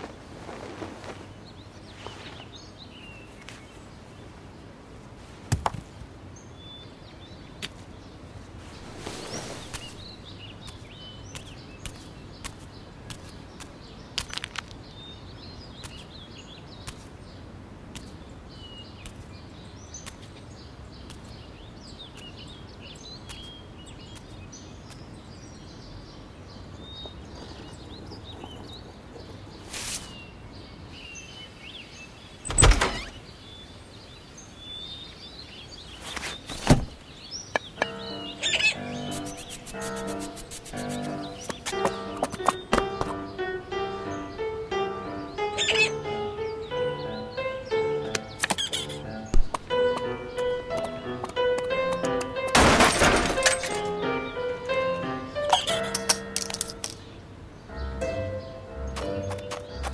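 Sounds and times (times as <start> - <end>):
birds chirping: 0.0 - 59.9
steady hiss: 8.3 - 11.5, 27.2 - 31.0, 37.3 - 42.2
sharp knocks and clicks: 48.1 - 53.8.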